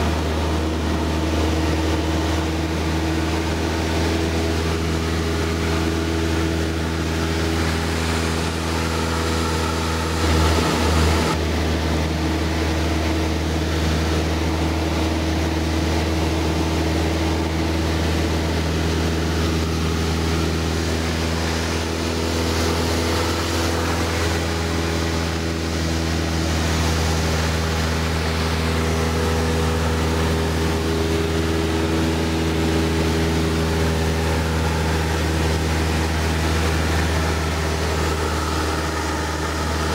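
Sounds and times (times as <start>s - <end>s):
propeller plane engine droning: 0.0s - 39.9s
low rumble: 5.1s - 11.4s.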